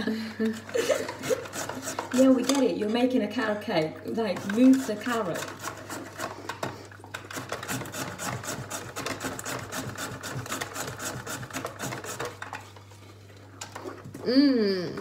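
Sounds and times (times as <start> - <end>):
whisk scraping glass bowl: 0.9 - 2.8, 4.2 - 6.4, 7.5 - 12.5.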